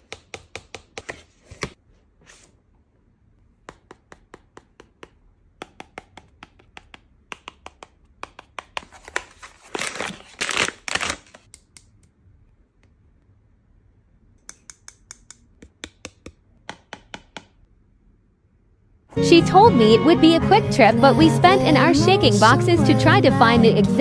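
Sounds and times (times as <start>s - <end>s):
fingernails tapping on cardboard: 0.0s - 1.2s, 3.6s - 9.2s, 14.5s - 17.6s
packaging rustling: 8.8s - 11.5s.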